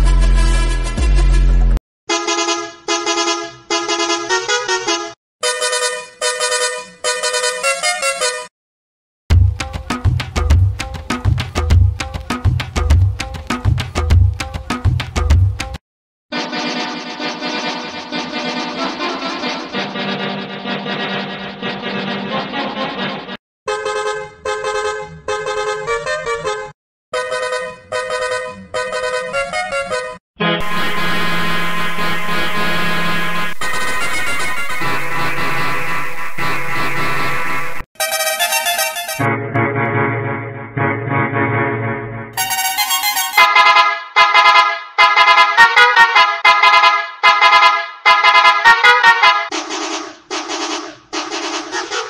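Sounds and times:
higher-pitched horn tune: 2.1s - 8.5s, 27.2s - 39.3s, 42.4s - 49.5s
low-pitched bus horn: 2.1s - 8.5s, 23.7s - 39.3s, 42.4s - 49.5s.

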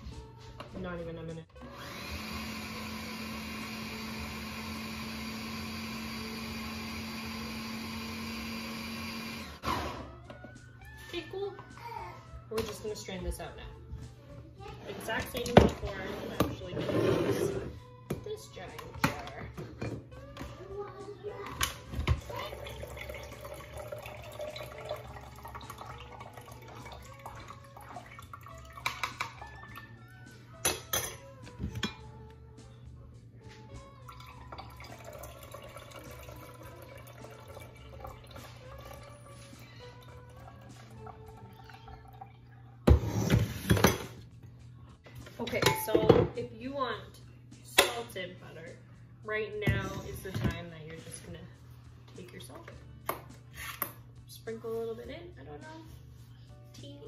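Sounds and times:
blender whining: 1.6s - 10.0s.

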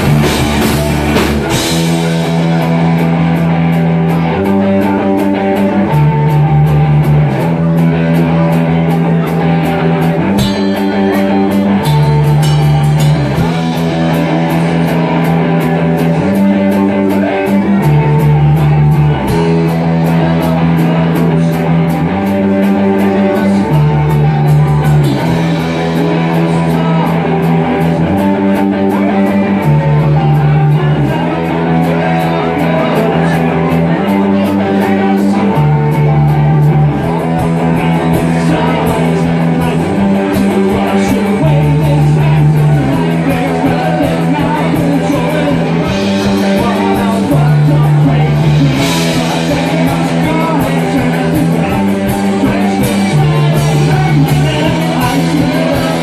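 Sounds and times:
drum beat with cymbals: 0.0s - 4.3s, 9.6s - 23.5s, 37.1s - 56.0s
electric guitars and bass: 0.0s - 56.0s.

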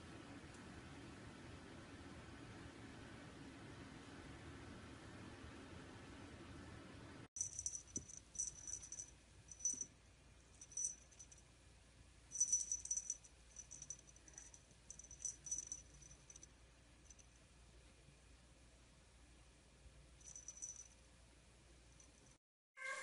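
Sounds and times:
small jingle bell jingling: 7.4s - 11.4s, 12.3s - 17.4s, 20.2s - 21.0s.

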